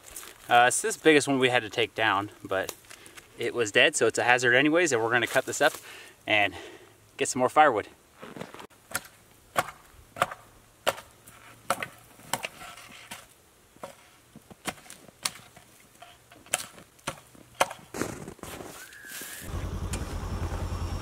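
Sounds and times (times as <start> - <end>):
sharp woody chops: 8.9 - 11.1.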